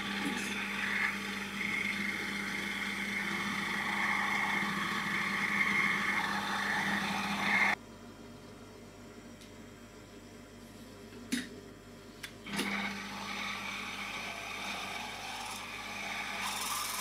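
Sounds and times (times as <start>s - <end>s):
end mill cutting aluminium: 0.0s - 7.8s, 12.5s - 17.0s
mill motor tone: 0.0s - 7.8s, 12.5s - 17.0s.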